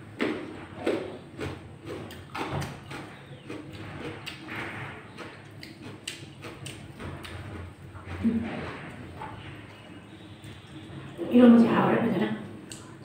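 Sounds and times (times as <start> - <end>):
chewing with wet mouth clicks: 0.2 - 8.1, 12.4 - 13.0.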